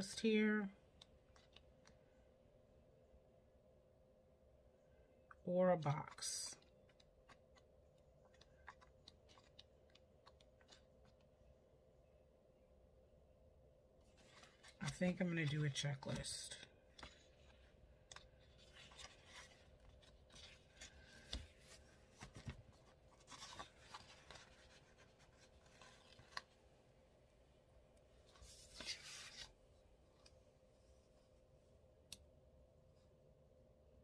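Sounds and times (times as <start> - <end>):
paper rustling: 8.2 - 11.3, 14.1 - 26.6, 28.2 - 29.6.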